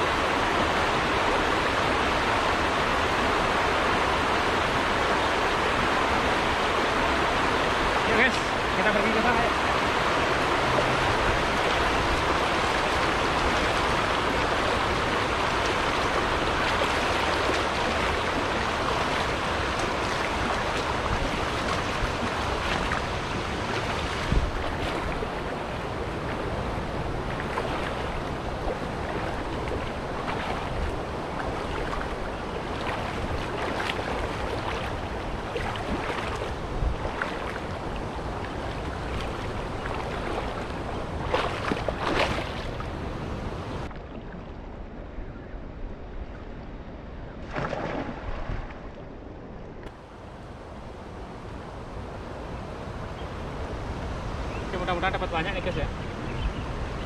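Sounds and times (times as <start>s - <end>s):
river water flowing over rocks: 0.0s - 44.8s
splashes from wading: 5.0s - 43.2s, 47.4s - 48.8s.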